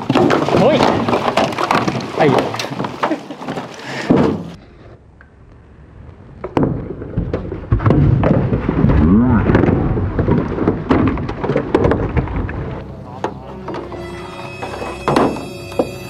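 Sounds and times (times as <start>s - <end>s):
water splashing and churning: 0.0s - 4.6s.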